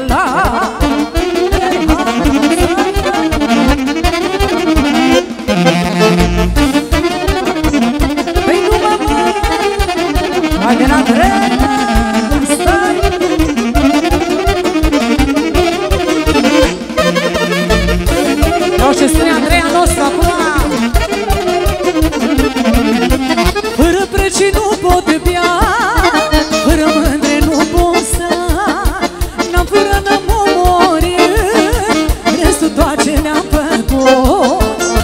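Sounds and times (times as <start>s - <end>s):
folk dance band playing: 0.0s - 35.0s.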